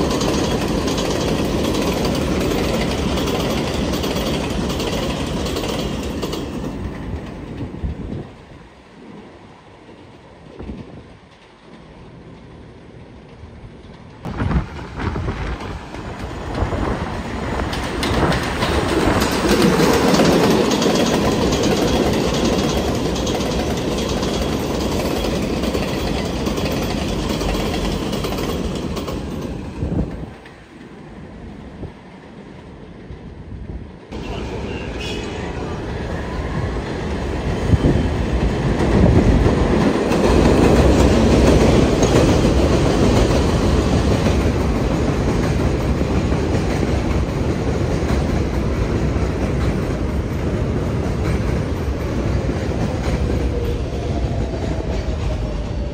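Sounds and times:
train wheels clacking: 0.0s - 8.0s, 13.8s - 30.9s, 36.8s - 55.9s
subway train rumbling: 0.0s - 55.9s.

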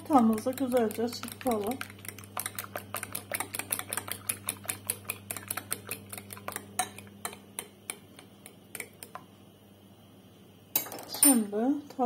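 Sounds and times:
fork beating eggs in a bowl: 0.0s - 9.3s.

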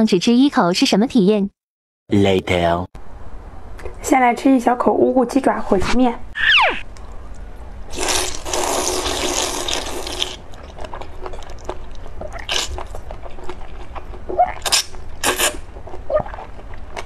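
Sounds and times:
person slurping noodles: 7.9s - 10.4s, 14.5s - 16.4s
chewing: 9.2s - 17.0s.

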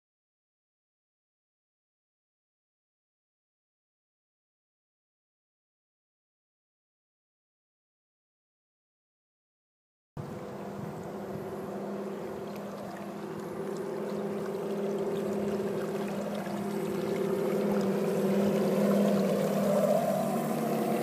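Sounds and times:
model boat motor hum: 10.2s - 21.0s
water wash: 10.2s - 21.0s.

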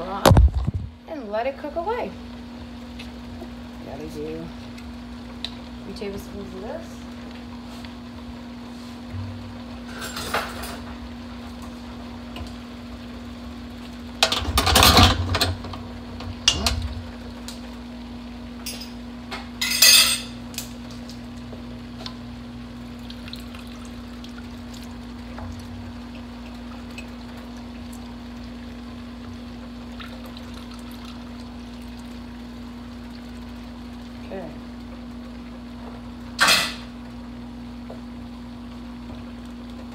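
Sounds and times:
low hum: 4.4s - 36.4s
kitchen utensils clattering: 9.9s - 10.9s, 14.2s - 15.6s, 19.6s - 20.4s, 36.4s - 36.9s.

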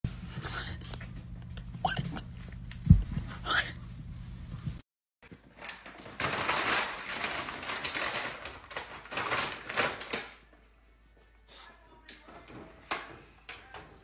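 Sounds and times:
plastic bag crackling: 5.3s - 10.5s.

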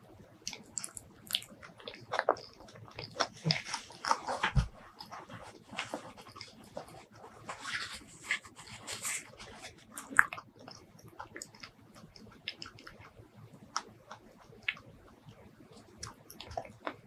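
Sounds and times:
mouth chewing clicks and smacks: 0.4s - 4.3s, 9.8s - 17.0s.

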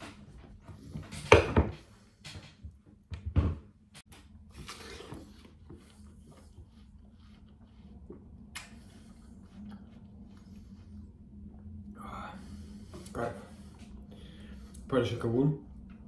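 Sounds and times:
loud watermelon bites: 4.5s - 5.6s
chewing with mouth clicks: 4.5s - 10.8s.

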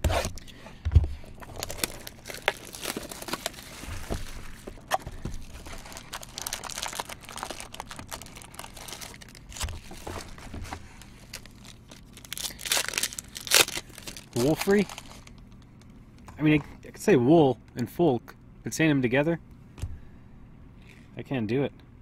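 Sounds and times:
wrappers crinkling and rustling: 1.3s - 15.6s.

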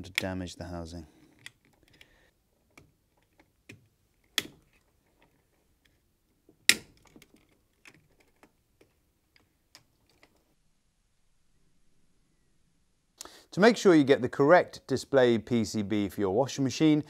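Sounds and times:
sharp plastic snaps: 1.4s - 4.8s, 6.6s - 10.4s
plastic clips clicking: 2.7s - 6.0s.

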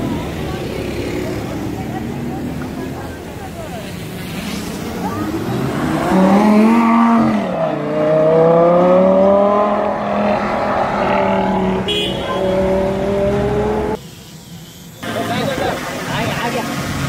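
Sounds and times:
sports car engine revving: 4.3s - 14.0s.

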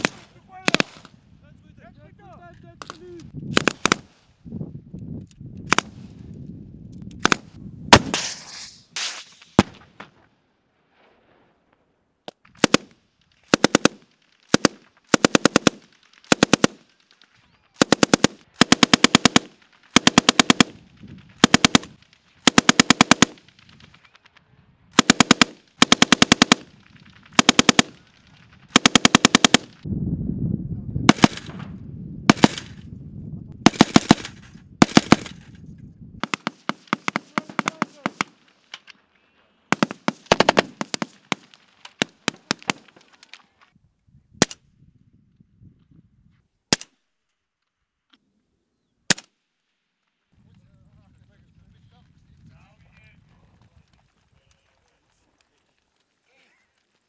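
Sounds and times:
rifle shots: 0.0s - 1.2s, 2.8s - 4.2s, 5.7s - 6.0s, 7.2s - 10.2s, 12.5s - 17.1s, 17.8s - 24.0s, 24.9s - 29.8s, 31.1s - 31.7s, 32.3s - 32.9s, 33.6s - 35.5s, 36.2s - 38.6s, 39.7s - 43.0s, 49.1s - 49.3s
machine gun bursts: 17.8s - 20.7s, 21.4s - 23.4s, 25.0s - 26.7s, 27.4s - 27.9s, 28.7s - 29.7s, 33.7s - 35.4s.

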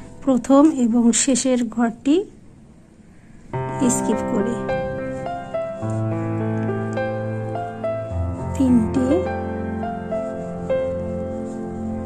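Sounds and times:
instrumental music with held notes: 3.5s - 12.0s.

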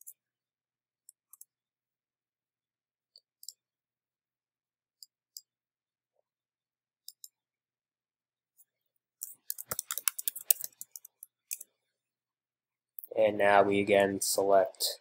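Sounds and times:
computer mouse clicks: 7.0s - 7.4s, 9.2s - 11.7s.

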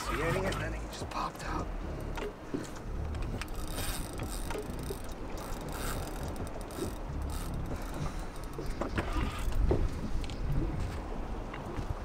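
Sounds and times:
fishing reel clicking and whirring: 3.0s - 9.6s.

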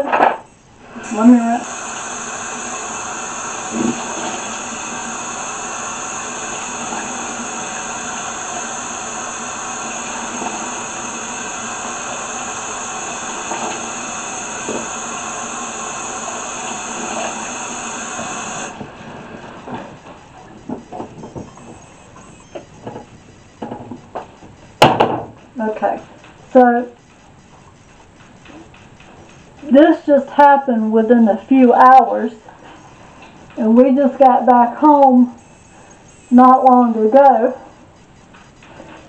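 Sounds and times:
faucet running water into sink: 0.9s - 18.8s.

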